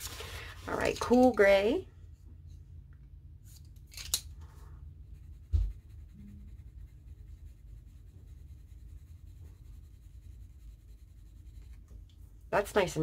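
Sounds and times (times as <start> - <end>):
pencil scratching on paper: 5.0 - 11.9.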